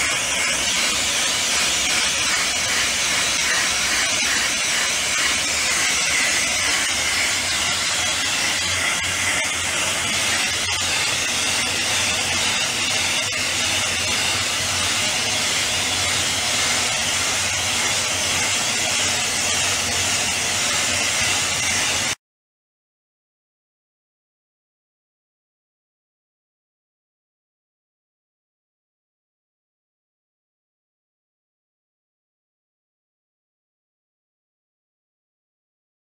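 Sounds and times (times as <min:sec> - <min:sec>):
blasting nozzle hissing: 0:00.0 - 0:22.2.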